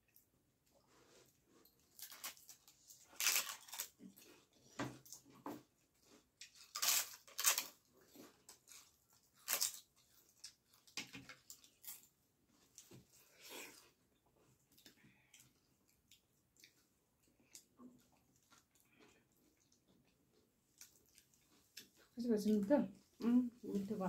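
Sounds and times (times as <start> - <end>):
crisp snack crunching: 1.8 - 4.3, 6.4 - 7.9, 8.5 - 12.1
wet chewing sounds: 5.9 - 22.1.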